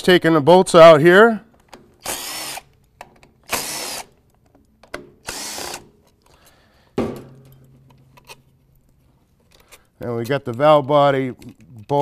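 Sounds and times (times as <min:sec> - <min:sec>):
power driver whirring: 0:02.0 - 0:02.7, 0:03.5 - 0:04.1, 0:05.2 - 0:05.9.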